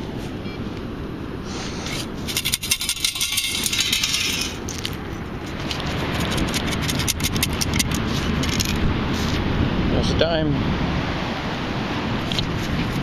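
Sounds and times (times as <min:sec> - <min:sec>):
sand and shells rattling in scoop: 0:02.2 - 0:05.0, 0:05.6 - 0:08.8.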